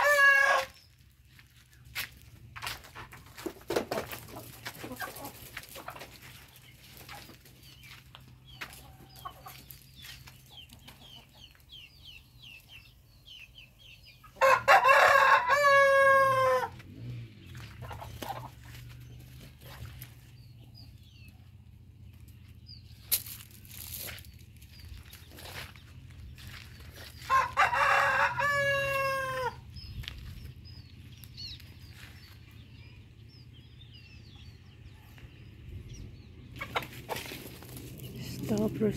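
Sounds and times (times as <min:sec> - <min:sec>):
rooster crowing: 0:00.0 - 0:00.8, 0:14.4 - 0:16.8, 0:27.2 - 0:29.6
small birds chirping: 0:00.7 - 0:14.4, 0:16.8 - 0:38.9.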